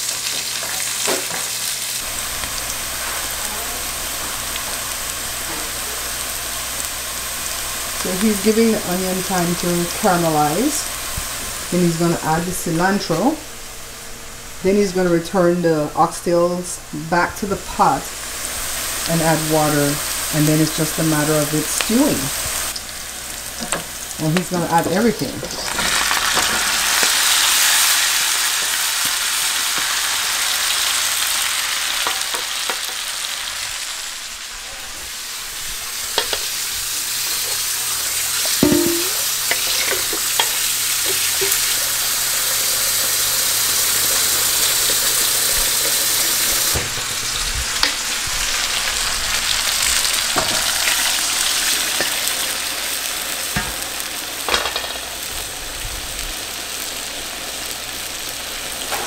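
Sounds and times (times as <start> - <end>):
meat and onions sizzling in pot: 0.0 - 59.0
utensils clinking and scraping pan: 38.4 - 41.8.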